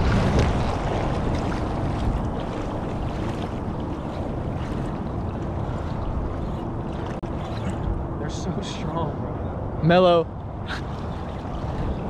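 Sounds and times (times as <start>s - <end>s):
water sloshing around legs: 0.0s - 8.1s, 10.7s - 12.0s
wind buffeting microphone: 0.0s - 12.0s.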